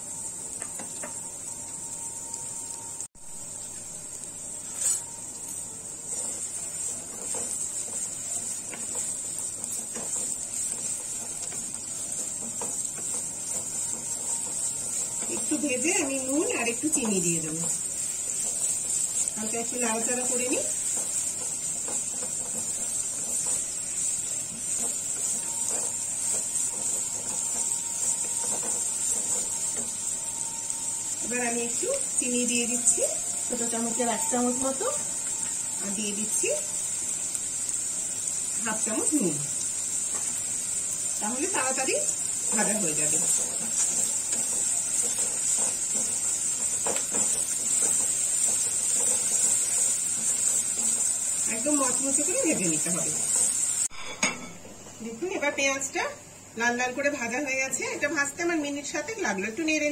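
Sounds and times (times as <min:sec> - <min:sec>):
onions sizzling in hot oil: 0:00.0 - 0:59.9
wooden spatula scraping: 0:04.6 - 0:36.4, 0:41.2 - 0:53.9.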